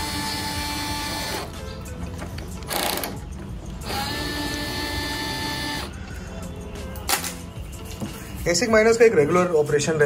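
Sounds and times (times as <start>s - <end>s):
electric screwdriver whining: 3.8s - 5.9s.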